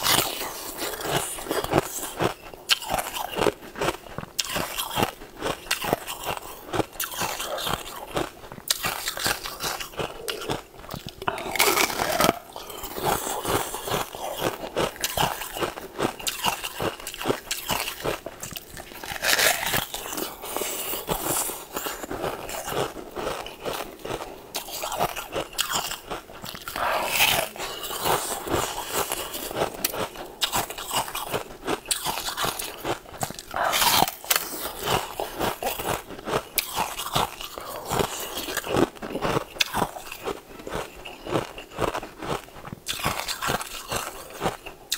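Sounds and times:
candy crunching: 0.0 - 44.9.

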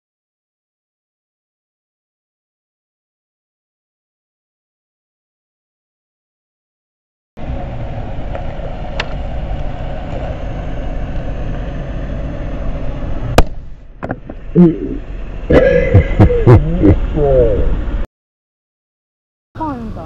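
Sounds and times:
sharp pop of charger bursting: 13.3 - 14.4
man exclaiming: 14.6 - 15.0, 16.4 - 17.7.

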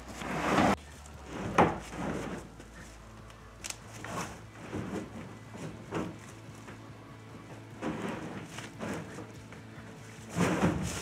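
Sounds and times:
plastic container scraping: 0.0 - 2.9, 3.9 - 6.5, 7.8 - 9.4, 10.0 - 11.0.

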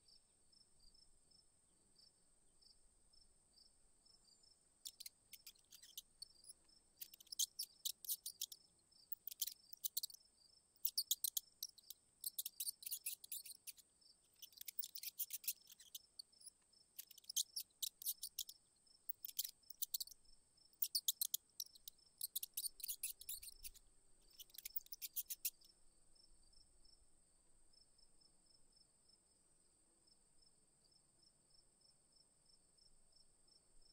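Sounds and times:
insects trilling: 4.4 - 25.7
insect clicking chirps: 4.8 - 10.2, 10.8 - 25.7.

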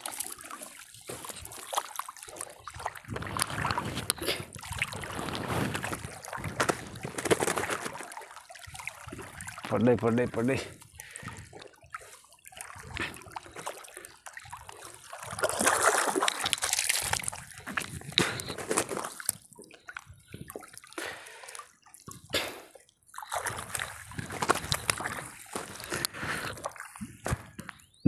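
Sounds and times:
wet fishing net hauled: 0.0 - 10.3, 14.8 - 20.7, 23.2 - 27.5
water dripping and splashing: 0.0 - 27.8.

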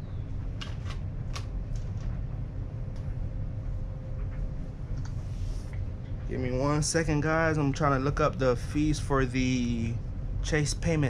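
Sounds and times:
faint steady hum: 0.0 - 11.0
low background rumble: 0.0 - 11.0.

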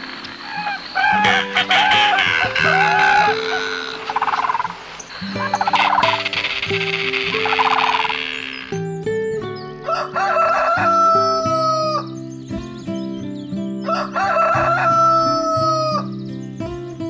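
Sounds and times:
background music low notes: 0.0 - 17.0
rooster crowing: 0.4 - 4.7, 9.8 - 12.1, 13.8 - 16.1.

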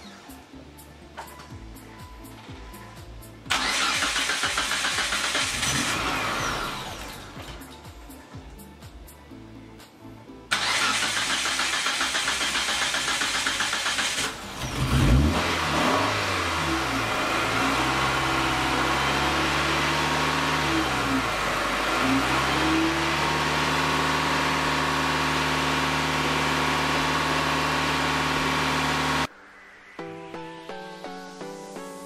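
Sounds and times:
car engine starting and revving: 3.5 - 7.7, 10.5 - 29.3.

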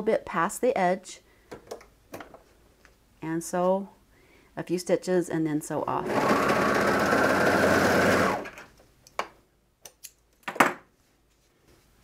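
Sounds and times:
overlock sewing machine running: 6.0 - 8.6.

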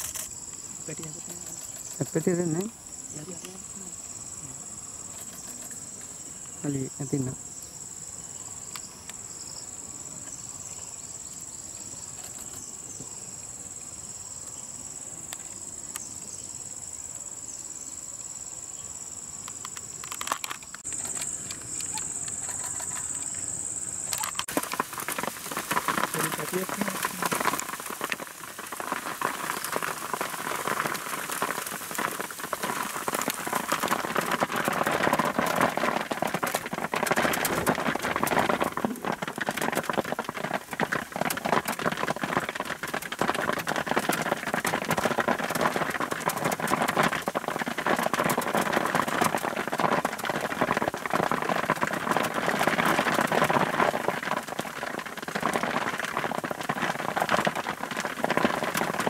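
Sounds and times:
steady rain falling: 0.0 - 7.4, 20.0 - 59.0.

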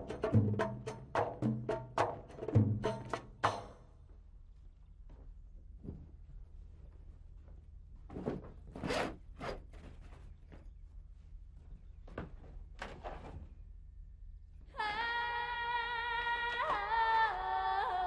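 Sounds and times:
percussive music: 0.0 - 3.9
rustles and thunks of rummaging: 5.7 - 13.7.

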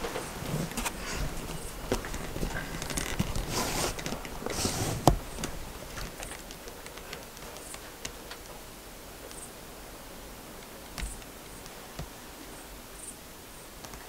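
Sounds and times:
rustling of gear handling: 0.0 - 7.8.

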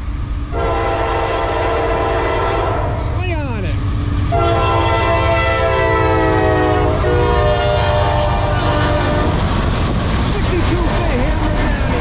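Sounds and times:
freight train rumbling past: 0.0 - 12.0
locomotive air horn blasts: 0.5 - 3.0, 4.3 - 9.4.

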